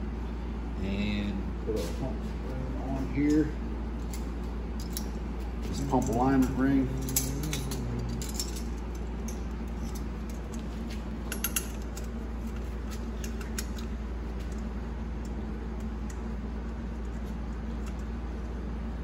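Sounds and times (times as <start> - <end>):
steady low hum: 0.0 - 19.0
metal parts clicking and clinking: 3.3 - 14.6.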